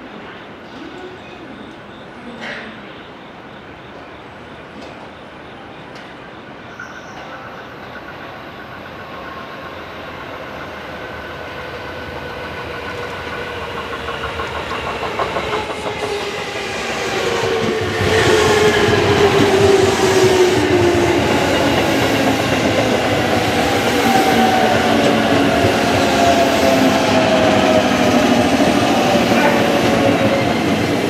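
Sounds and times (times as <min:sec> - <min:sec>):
train wheels clacking over rail joints: 0:12.7 - 0:16.7.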